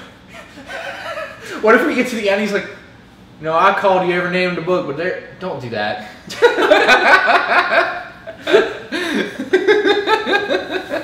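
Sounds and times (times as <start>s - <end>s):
young men laughing: 0.2s - 1.9s, 6.2s - 11.0s.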